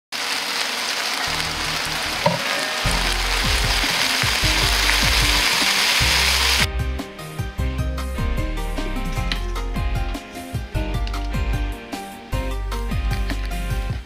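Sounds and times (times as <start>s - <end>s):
stir-fry sizzling in a wok: 0.2s - 6.7s
background music with bass: 1.3s - 14.0s.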